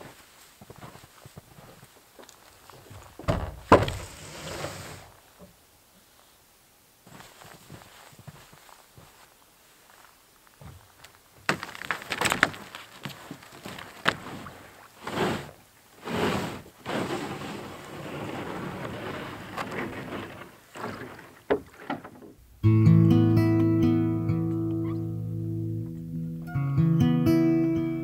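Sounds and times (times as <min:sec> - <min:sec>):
knocks on canoe hull: 0:03.3 - 0:04.2
hull scraping over snow and ice: 0:04.0 - 0:05.2, 0:12.6 - 0:21.5.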